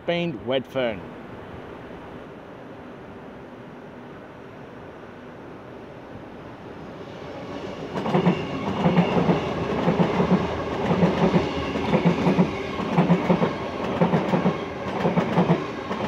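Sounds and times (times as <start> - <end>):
train rumble: 1.0 - 16.0
train wheels clacking over rail joints: 8.0 - 16.0.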